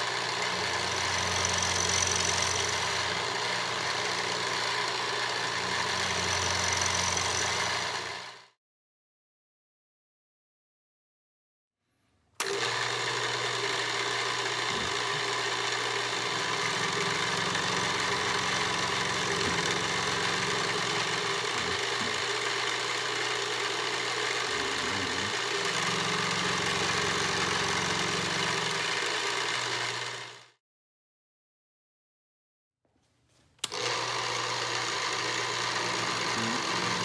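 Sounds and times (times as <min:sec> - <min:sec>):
milling machine hum: 0:00.0 - 0:08.3, 0:12.4 - 0:30.3, 0:33.7 - 0:37.0.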